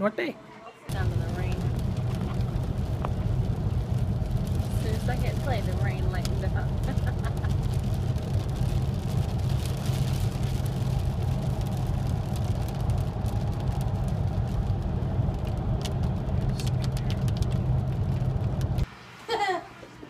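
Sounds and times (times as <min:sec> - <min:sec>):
raindrops ticking on windshield: 0:00.9 - 0:18.9
windshield wipers: 0:00.9 - 0:18.9
tyres hissing on wet road: 0:00.9 - 0:19.6
engine and road noise drone: 0:00.9 - 0:20.0.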